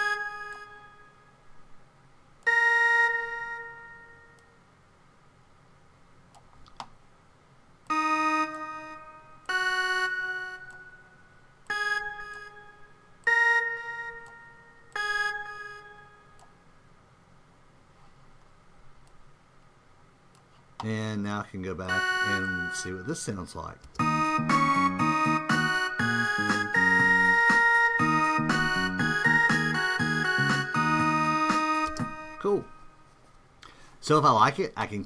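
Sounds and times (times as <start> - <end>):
synth lead single notes: 7.9 - 16.4, 21.9 - 23.4, 24.0 - 33.1.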